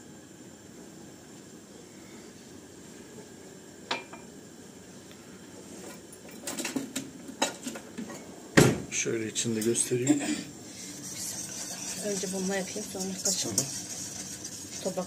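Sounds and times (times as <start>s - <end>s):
metal utensils clattering on pans: 6.2s - 8.2s, 10.9s - 15.0s.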